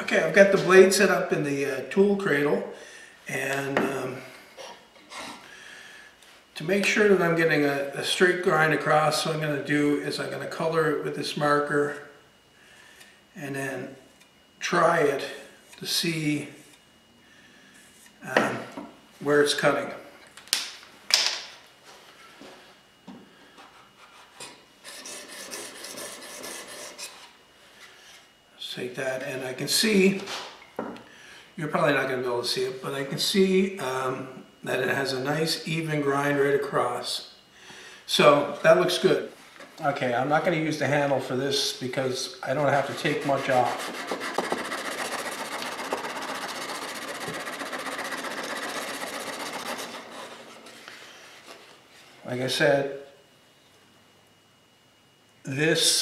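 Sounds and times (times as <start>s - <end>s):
plane iron grinding on abrasive: 42.6s - 51.0s.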